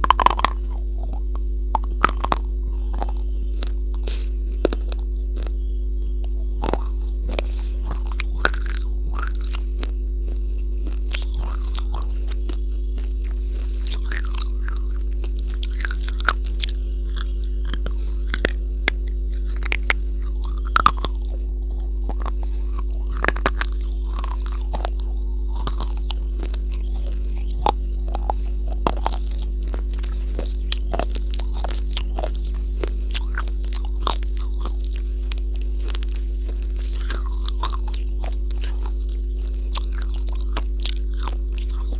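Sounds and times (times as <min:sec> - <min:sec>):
crunchy chewing: 0:00.0 - 0:41.9
steady low hum: 0:00.0 - 0:41.9.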